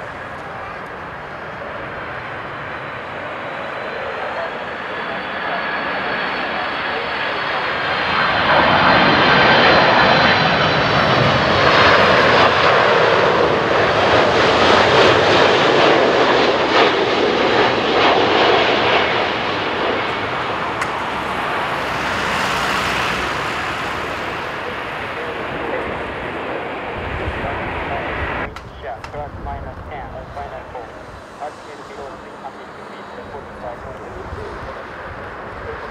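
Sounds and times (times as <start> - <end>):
jet airliner roar: 0.0 - 35.9
high whine: 17.5 - 35.9.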